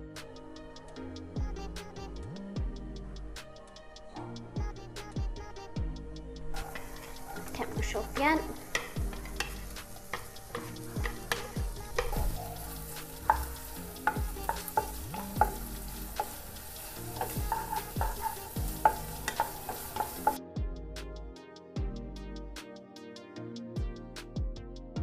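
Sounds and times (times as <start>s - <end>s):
onions sizzling in oil: 6.6s - 20.4s
spatula scraping and knocking pan: 6.6s - 20.4s.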